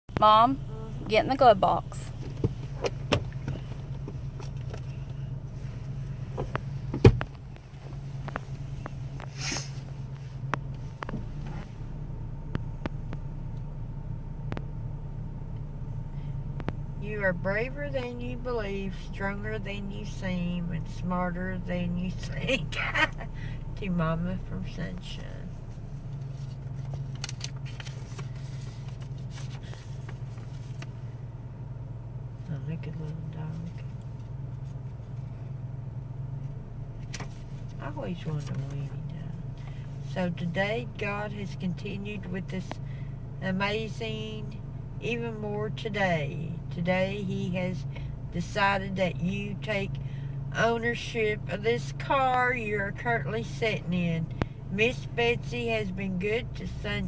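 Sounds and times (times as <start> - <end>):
car cabin hum: 0.0 - 57.0
paper rustling and crinkling: 26.3 - 30.9.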